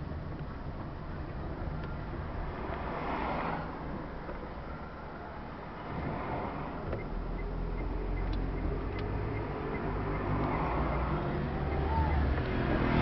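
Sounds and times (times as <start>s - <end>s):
road noise: 0.0s - 13.0s
bus engine hum: 3.7s - 13.0s.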